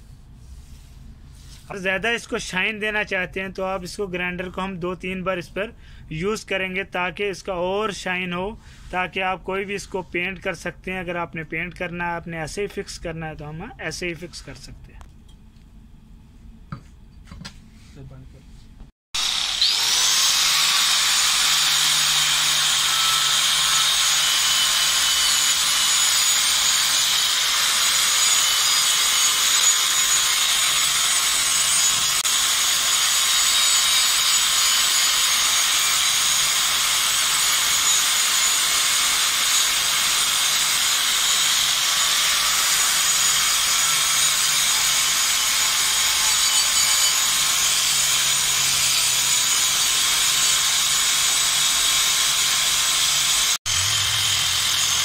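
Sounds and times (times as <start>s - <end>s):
wire brush grinder on steel: 19.2s - 55.0s.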